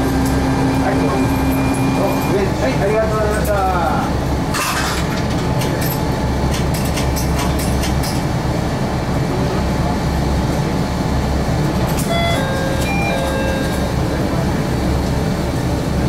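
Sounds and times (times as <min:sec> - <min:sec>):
diesel engine low rumble: 0:00.0 - 0:16.0
short electronic chime tones: 0:12.0 - 0:14.1.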